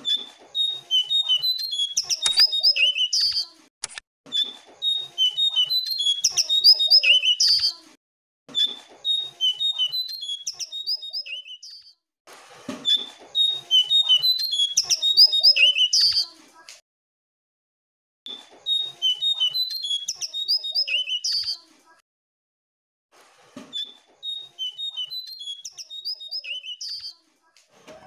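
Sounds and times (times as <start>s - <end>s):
bird singing whistled notes: 0.1s - 3.4s, 4.8s - 7.7s, 9.0s - 12.0s, 13.4s - 16.2s, 18.7s - 21.6s, 23.8s - 27.2s.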